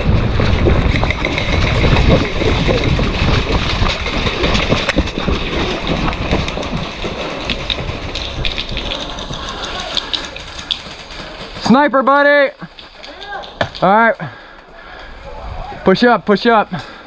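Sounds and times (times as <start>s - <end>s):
wind rumbling on microphone: 0.0s - 11.6s, 14.7s - 16.3s
gear jostling: 0.4s - 15.1s.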